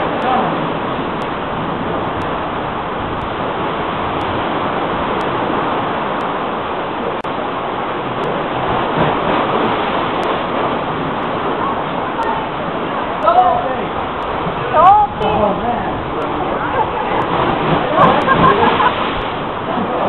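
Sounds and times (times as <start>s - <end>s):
ocean surge churning in rock inlet: 0.0s - 20.0s
wave blowing spray from cave: 13.4s - 20.0s.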